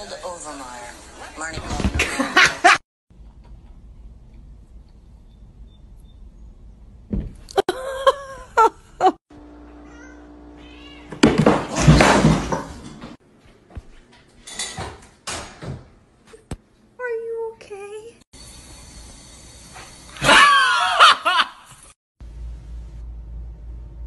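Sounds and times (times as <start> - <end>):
cat meowing: 9.8 - 11.2.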